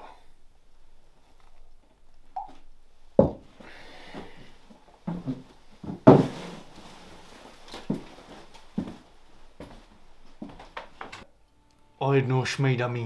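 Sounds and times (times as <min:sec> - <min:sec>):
knocks and thumps in a room: 0:03.2 - 0:07.1.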